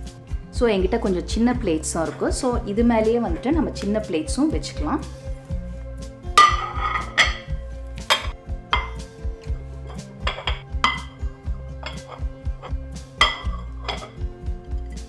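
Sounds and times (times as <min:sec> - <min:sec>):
plates clinking in wire rack: 0:06.4 - 0:07.5, 0:08.1 - 0:09.0, 0:11.8 - 0:12.3, 0:13.2 - 0:14.2.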